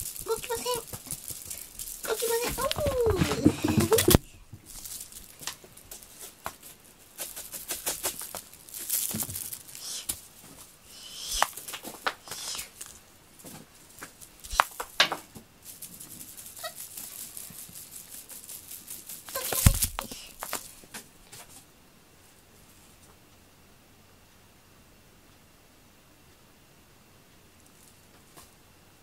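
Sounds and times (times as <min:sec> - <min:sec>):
cat playing with toy on carpet: 0:00.0 - 0:21.4.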